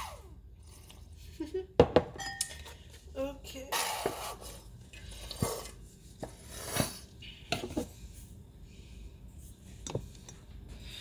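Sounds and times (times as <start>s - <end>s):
kitchen items clinking on counter: 1.8s - 2.9s.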